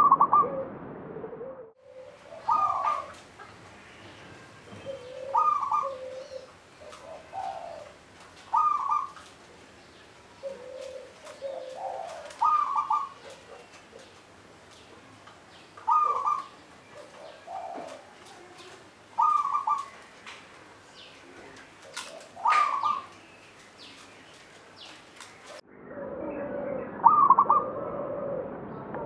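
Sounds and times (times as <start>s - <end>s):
dove cooing: 0.0s - 0.7s, 1.3s - 9.3s, 10.4s - 14.3s, 15.8s - 20.1s, 21.0s - 23.2s, 27.0s - 28.5s.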